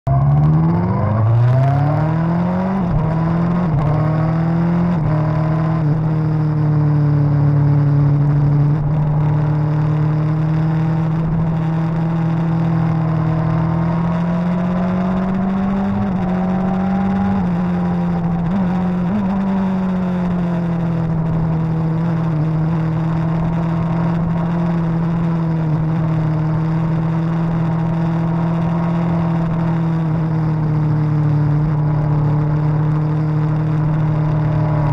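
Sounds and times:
motorcycle engine accelerating: 0.1 - 34.9.

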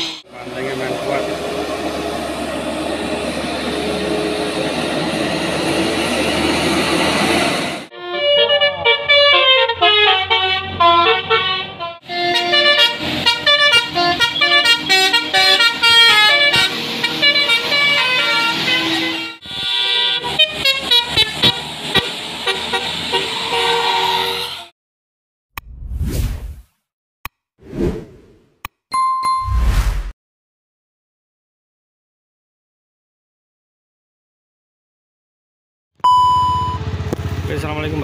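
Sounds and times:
musical air horns: 7.9 - 24.7.

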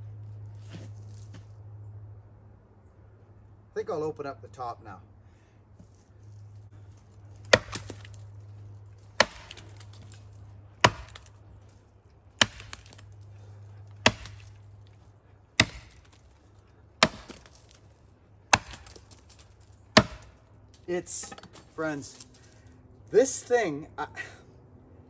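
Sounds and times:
axe chopping tree trunk: 6.9 - 11.5, 12.4 - 22.4.

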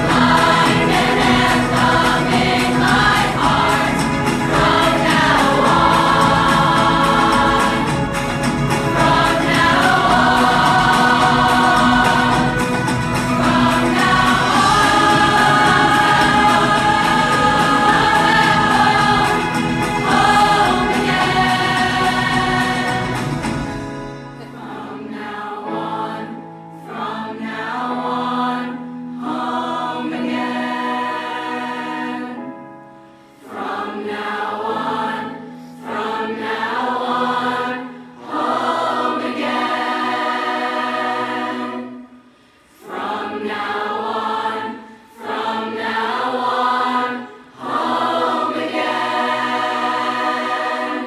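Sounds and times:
low accompaniment: 0.0 - 24.8
choir singing slow chords: 0.0 - 51.0.

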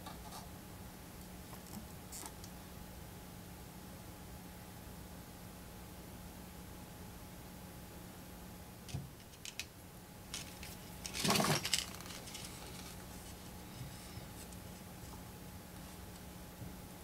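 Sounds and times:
faint steady hum: 0.0 - 17.0
metal parts clicking and rattling: 8.9 - 9.7, 10.3 - 13.0.

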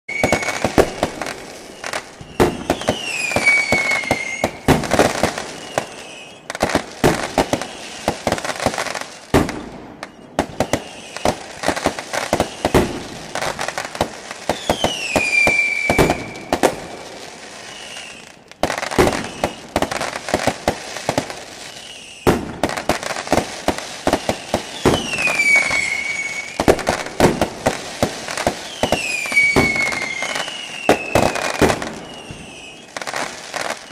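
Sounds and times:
short falling whistles: 0.1 - 6.6, 10.0 - 11.4, 12.2 - 12.9, 14.5 - 18.4, 19.0 - 19.8, 21.6 - 22.3, 24.1 - 26.6, 28.6 - 33.9
firework sparks crackling: 0.1 - 33.9.

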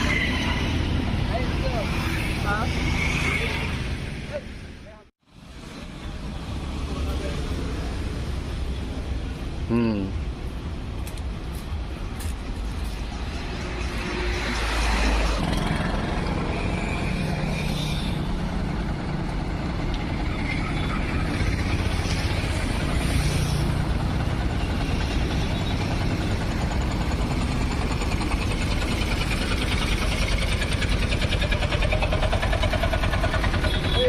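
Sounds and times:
road noise: 0.0 - 34.0
vehicle engine running: 18.0 - 34.0.

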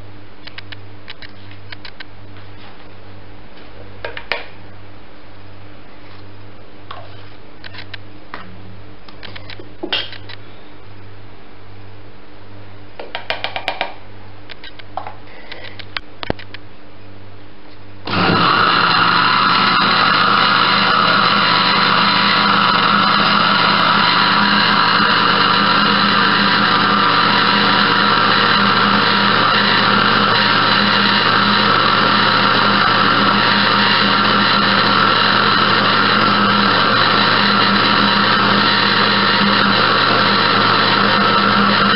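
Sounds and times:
blender running: 18.1 - 41.9.

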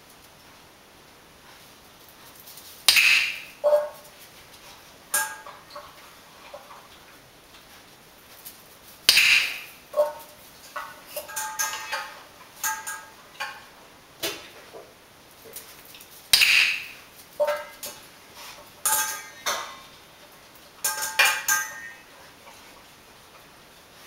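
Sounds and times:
metal dog bowl clinking on tile: 5.1 - 6.0, 9.1 - 13.7, 18.8 - 19.8, 20.8 - 22.2.

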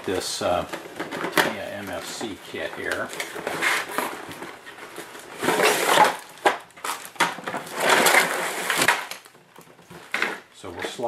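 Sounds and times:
cardboard scraping and rubbing: 2.2 - 6.2, 7.6 - 8.9.

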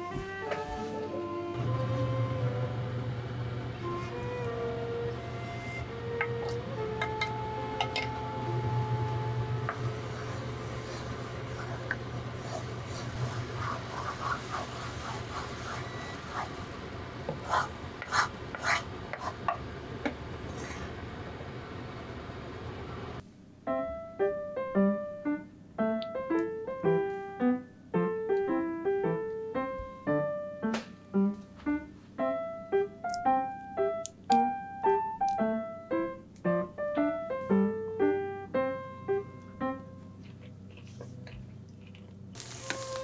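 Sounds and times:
solo piano music: 0.0 - 10.5, 23.5 - 40.3
wooden spoon scraping a pan: 9.6 - 16.7, 17.3 - 21.0.

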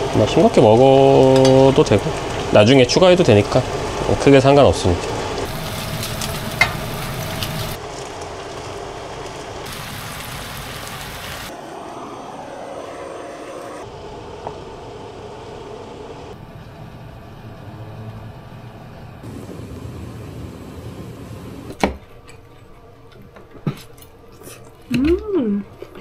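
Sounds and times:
food sizzling in a frying pan: 0.7 - 11.5
blowtorch flame: 9.6 - 16.0, 19.2 - 21.8.

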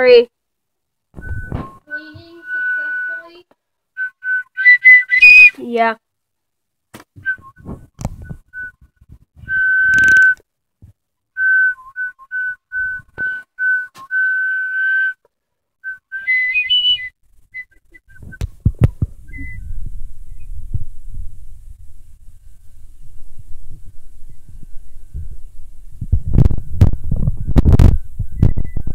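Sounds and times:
person whistling: 1.2 - 3.4, 4.0 - 5.6, 7.2 - 10.4, 11.4 - 15.2, 15.8 - 18.4, 19.3 - 19.8.

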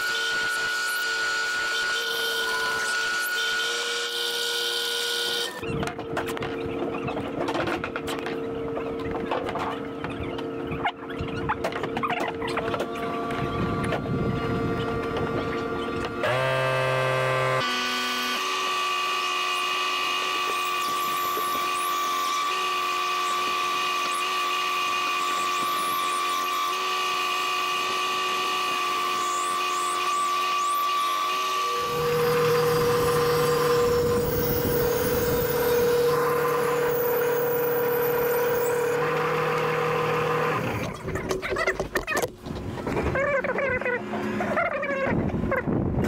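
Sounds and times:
bandsaw cutting wood: 0.0 - 5.7, 11.7 - 42.3.

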